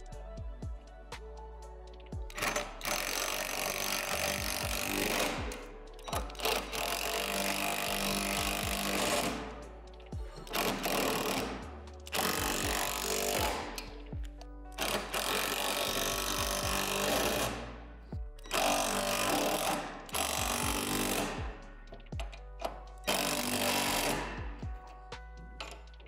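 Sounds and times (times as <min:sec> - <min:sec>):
impact driver hammering bolts: 0:22.2 - 0:24.4.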